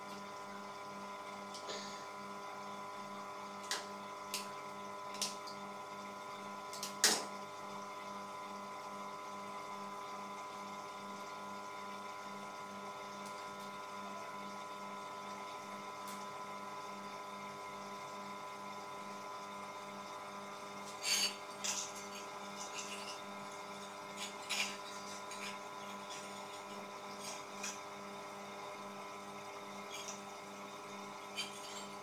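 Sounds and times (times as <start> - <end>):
pulsing electrical hum: 0.0 - 32.0
heating wire clicks and scrapes: 20.8 - 23.2, 23.8 - 27.8, 29.9 - 30.2, 31.3 - 32.0.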